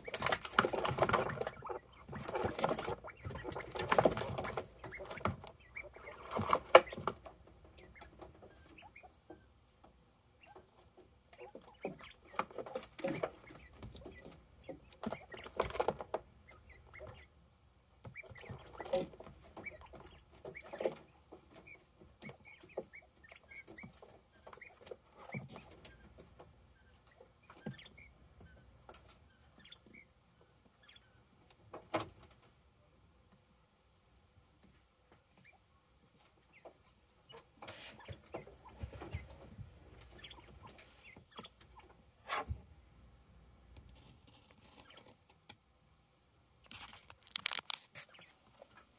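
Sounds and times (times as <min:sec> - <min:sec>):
rustling and scratching: 0:00.0 - 0:09.8, 0:10.4 - 0:17.2, 0:18.0 - 0:29.7, 0:36.1 - 0:42.7, 0:43.8 - 0:45.6, 0:46.6 - 0:48.9.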